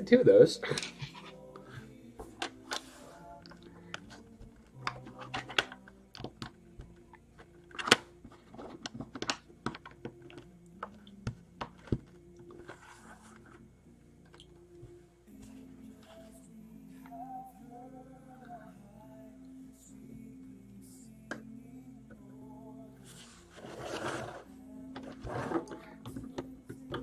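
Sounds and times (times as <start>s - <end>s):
faint music: 0.0s - 27.0s
plastic bricks clicking: 7.7s - 11.0s.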